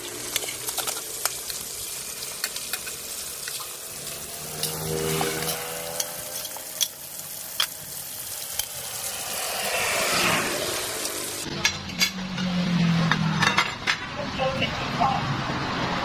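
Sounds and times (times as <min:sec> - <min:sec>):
fish sizzling in oil: 0:00.0 - 0:11.5.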